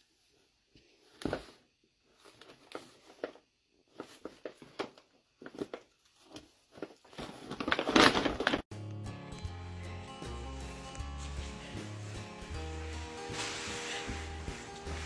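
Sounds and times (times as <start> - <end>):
paper bag rustling and crinkling: 2.2 - 8.7, 10.6 - 15.0.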